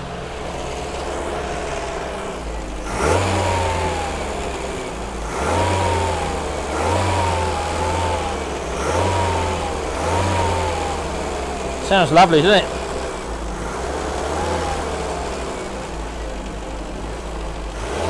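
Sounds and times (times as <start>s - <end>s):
car engine revving: 0.0s - 18.0s.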